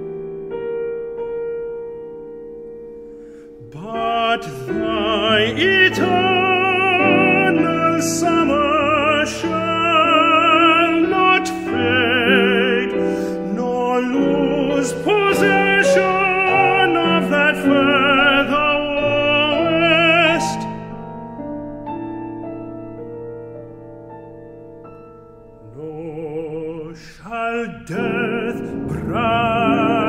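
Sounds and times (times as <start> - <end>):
piano accompaniment: 0.0 - 30.0
tenor singing with vibrato: 3.5 - 21.1, 25.6 - 30.0.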